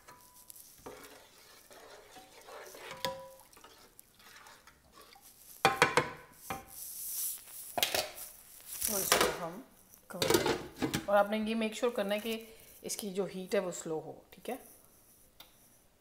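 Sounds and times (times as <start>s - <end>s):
spoon stirring grains in water: 0.0s - 9.3s.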